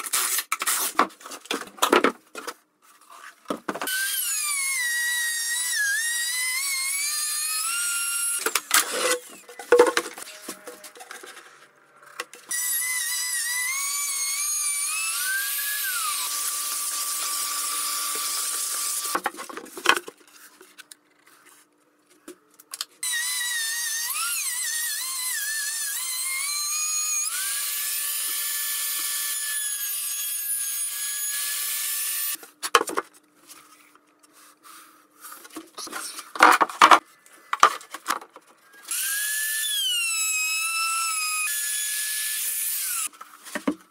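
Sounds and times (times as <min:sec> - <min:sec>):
router whining through wood: 0:03.8 - 0:11.4, 0:12.1 - 0:19.3, 0:23.0 - 0:32.4, 0:38.7 - 0:43.2.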